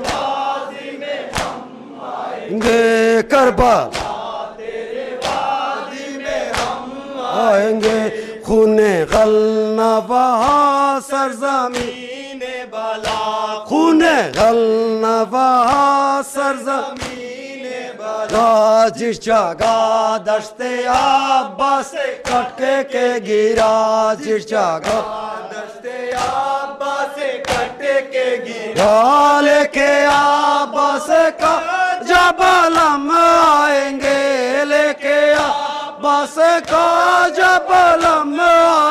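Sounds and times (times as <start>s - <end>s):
hands slapping chests: 0.0s - 0.4s, 1.2s - 1.7s, 2.5s - 2.9s, 3.6s - 4.4s, 5.1s - 5.6s, 6.2s - 6.9s, 7.8s - 8.3s, 10.3s - 10.8s, 11.7s - 12.1s, 12.9s - 14.7s, 15.6s - 16.0s, 16.9s - 17.4s, 18.2s - 18.6s, 19.5s - 19.9s, 20.8s - 22.7s, 23.4s - 25.3s, 26.0s - 26.6s, 27.4s - 28.0s, 28.7s - 38.9s
men chanting together: 0.0s - 38.9s.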